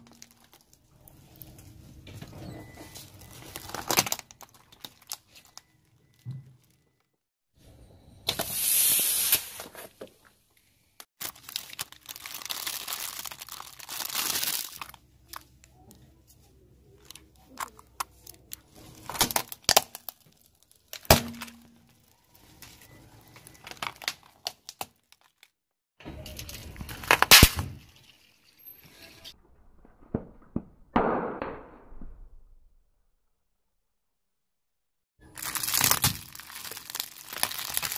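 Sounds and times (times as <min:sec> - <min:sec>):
tyre crushing plastic: 0:00.0 - 0:01.6, 0:02.8 - 0:06.8, 0:11.2 - 0:15.5, 0:17.0 - 0:25.5, 0:26.2 - 0:27.9, 0:35.2 - 0:37.9.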